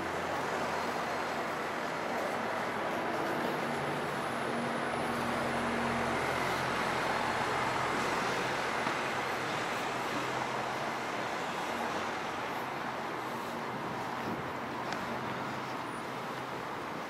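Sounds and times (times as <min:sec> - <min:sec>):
traffic road noise: 0:00.0 - 0:17.0.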